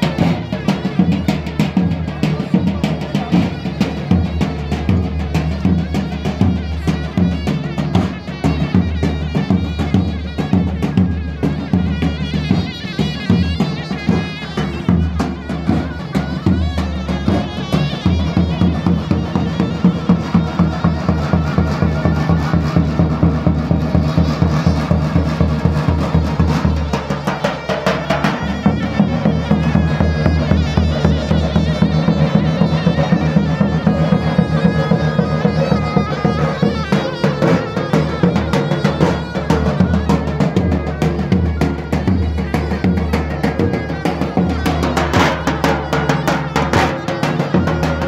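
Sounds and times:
driving drum beat: 0.0 - 48.0
shrill reed melody: 0.1 - 48.0.

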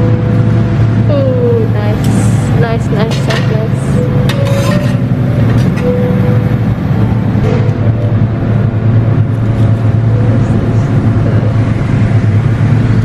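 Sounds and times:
machinery humming: 0.0 - 13.0.

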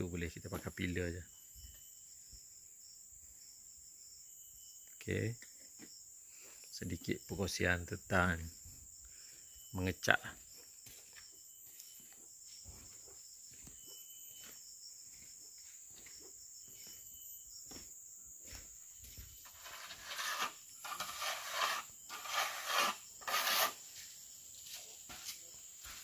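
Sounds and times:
faint chirps: 0.0 - 22.8
high insect drone: 0.0 - 26.0
metal trowel scraping concrete: 19.4 - 23.8.

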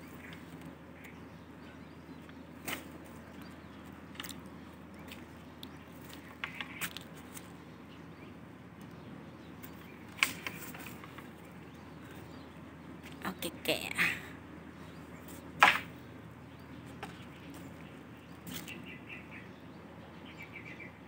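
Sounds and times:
pole knocking among branches: 2.2 - 3.5, 9.6 - 11.4, 15.3 - 16.0.

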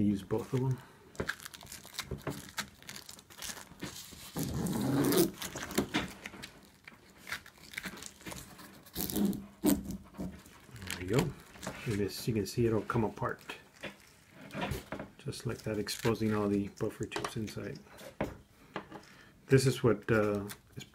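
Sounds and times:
gloves rustling: 0.1 - 19.2
plastic cable jacket ripping: 0.4 - 12.1, 15.4 - 16.8.

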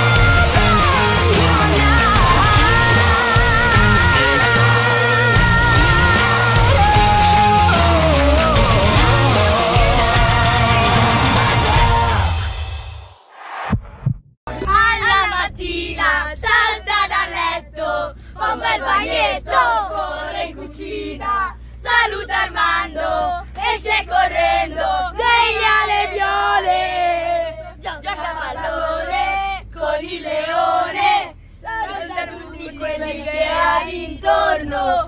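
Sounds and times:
boys singing and chanting: 0.0 - 12.3, 14.6 - 35.0
low hum of coach: 14.6 - 35.0.

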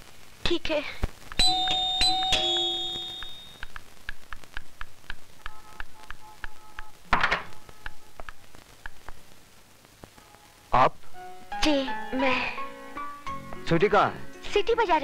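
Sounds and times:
doorbell two-tone chime: 1.4 - 3.6.

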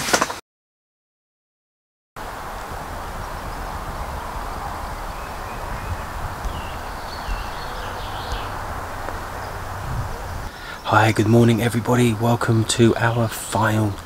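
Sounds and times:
wind rumble on microphone: 2.2 - 10.5
small birds chirping: 2.2 - 14.0.

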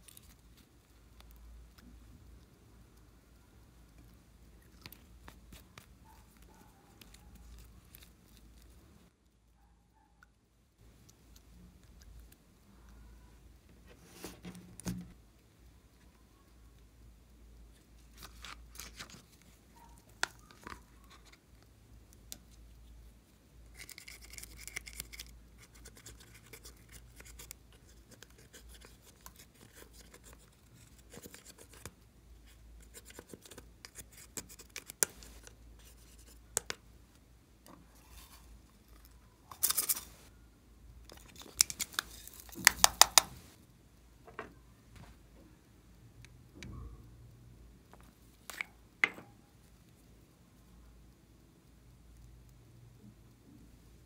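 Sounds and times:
plastic palette tapping and clicks: 42.6 - 43.4.

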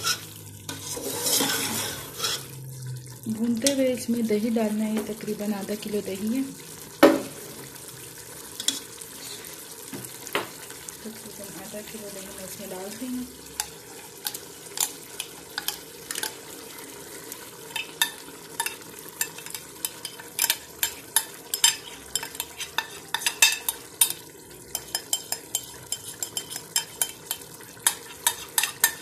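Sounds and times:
spoon scraping plastic tub: 0.0 - 2.6
meat sizzling in pot: 0.0 - 29.0.

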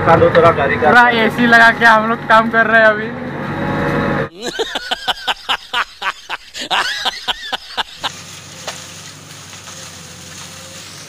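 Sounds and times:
comic laughing sound effect: 4.3 - 8.2
distant backhoe engine humming: 7.0 - 11.0.

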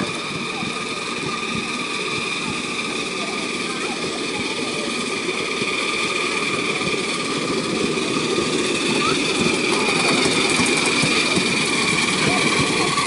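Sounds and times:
steam hissing: 0.0 - 13.0
steam locomotive rapid beats: 0.0 - 13.0.

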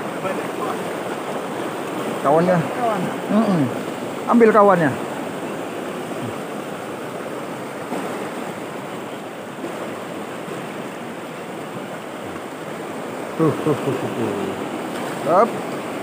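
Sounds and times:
river rapids rushing over boulders: 0.0 - 16.0.

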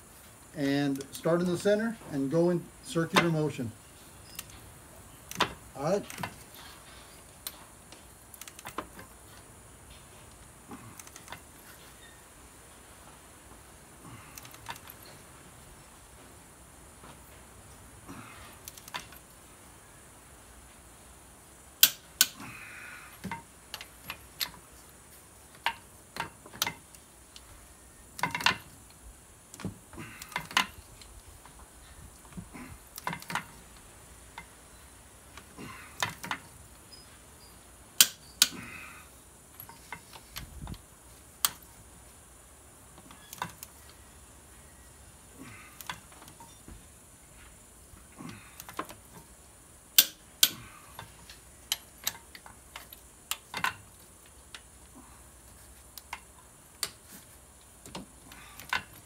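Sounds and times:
torque wrench clicks: 50.0 - 50.6.

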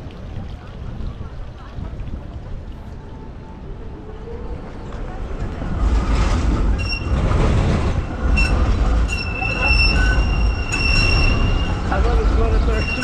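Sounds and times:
low rumble: 0.0 - 13.0
tram wheels squealing: 5.7 - 13.0.

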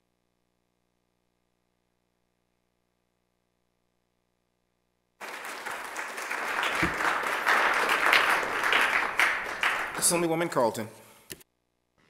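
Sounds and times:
people applauding: 5.2 - 10.8.

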